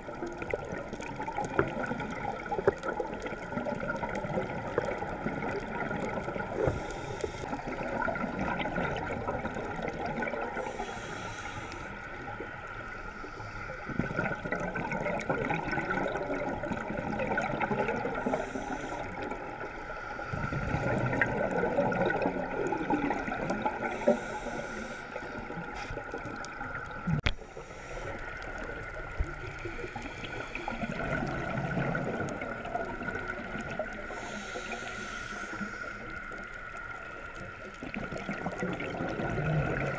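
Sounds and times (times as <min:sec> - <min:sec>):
underwater bubbles gurgling: 0:00.0 - 0:39.9.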